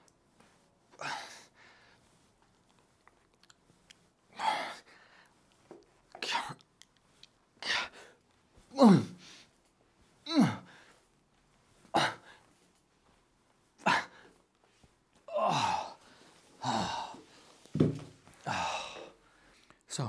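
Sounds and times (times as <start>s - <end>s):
heavy effortful exhalations: 0.5s - 2.1s, 4.3s - 6.6s, 7.6s - 9.6s, 10.2s - 11.1s, 11.8s - 12.6s, 13.8s - 14.4s, 15.2s - 19.6s
man grunting: 8.7s - 9.2s, 10.3s - 10.7s, 12.0s - 12.3s, 15.3s - 16.0s, 16.6s - 17.2s, 18.5s - 19.1s.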